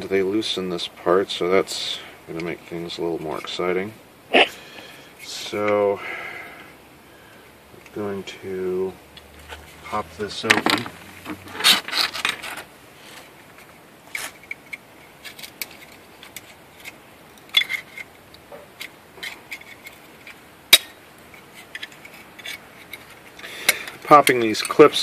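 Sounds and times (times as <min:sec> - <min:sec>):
small clicks and scrapes: 0:10.5 - 0:20.4, 0:21.2 - 0:25.0.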